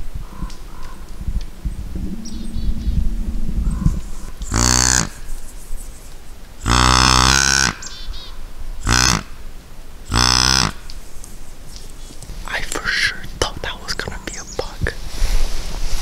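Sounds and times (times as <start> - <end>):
deer grunt calls: 3.8 - 5.3, 6.6 - 9.4, 10.1 - 11.0.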